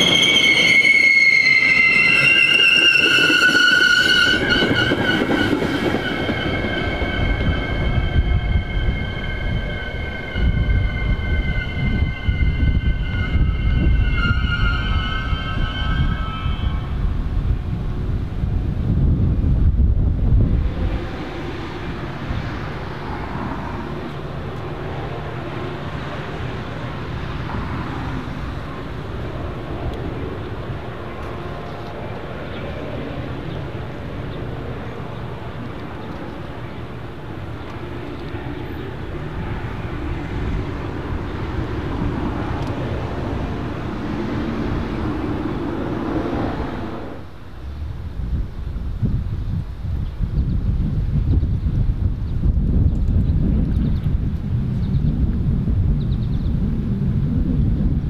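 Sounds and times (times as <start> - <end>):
train wheels rumbling on track: 0.0 - 58.0
low drone: 5.2 - 49.6.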